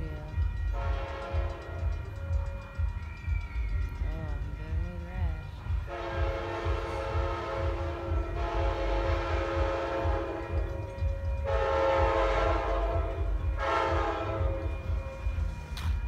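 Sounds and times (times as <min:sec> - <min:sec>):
distant train horn blasts: 0:00.4 - 0:02.9, 0:05.8 - 0:15.2.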